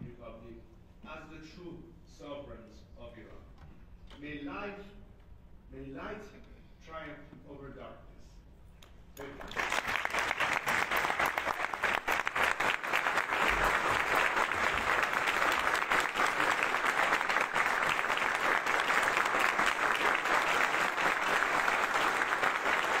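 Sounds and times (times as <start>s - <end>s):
audience applauding: 9.2s - 23.0s.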